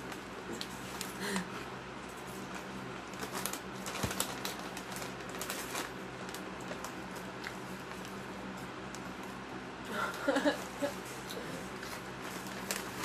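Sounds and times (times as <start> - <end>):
steady low hum: 0.0 - 13.0
plastic snack bags rustling: 2.1 - 9.1, 11.7 - 13.0.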